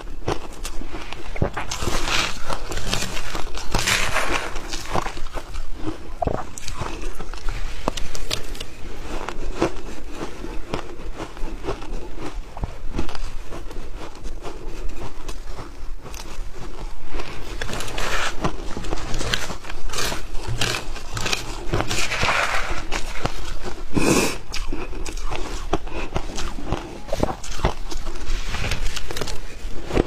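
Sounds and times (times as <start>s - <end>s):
ice crunching as it is chewed: 0.0s - 30.0s
metal spoon scraping ice in bowl: 1.7s - 5.5s, 19.9s - 23.6s.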